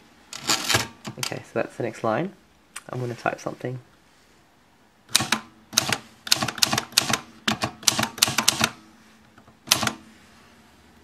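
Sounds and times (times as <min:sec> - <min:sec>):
typewriter keys clacking: 0:05.2 - 0:08.8.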